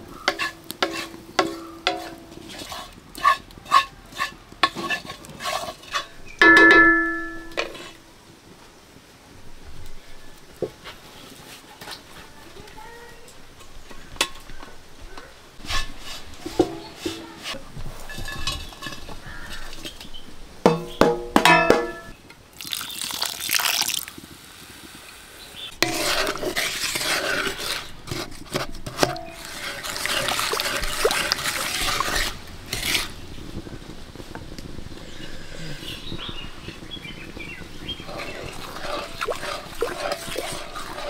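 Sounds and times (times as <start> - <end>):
pan and utensil knocks: 6.4 - 7.8, 20.7 - 22.2
syrup hissing and bubbling: 22.5 - 25.2, 29.2 - 33.1, 35.0 - 41.0.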